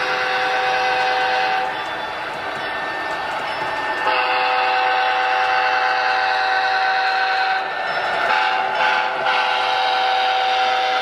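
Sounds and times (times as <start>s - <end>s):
model train horn chord: 0.0s - 1.7s, 4.1s - 7.6s, 8.3s - 11.0s.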